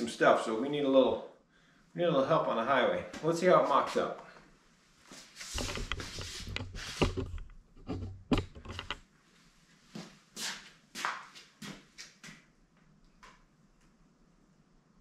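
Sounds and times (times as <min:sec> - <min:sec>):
rustling handling noise: 0:05.0 - 0:09.0.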